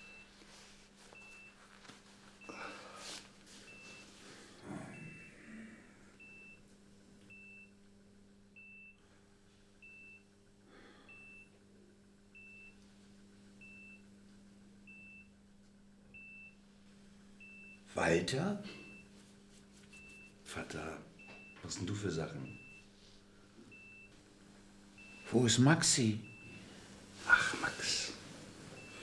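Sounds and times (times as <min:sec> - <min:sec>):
patient monitor beeping: 0:00.0 - 0:00.4, 0:01.1 - 0:01.7, 0:02.4 - 0:06.6, 0:07.3 - 0:07.7, 0:08.6 - 0:09.0, 0:09.8 - 0:10.3, 0:11.1 - 0:11.6, 0:12.4 - 0:12.8, 0:13.6 - 0:14.0, 0:14.9 - 0:15.3, 0:16.1 - 0:16.6, 0:17.4 - 0:19.2, 0:19.9 - 0:22.9, 0:23.7 - 0:24.2, 0:25.0 - 0:29.0
soft rustles: 0:00.0 - 0:04.6, 0:18.8 - 0:20.4
low steady hum: 0:00.0 - 0:29.0.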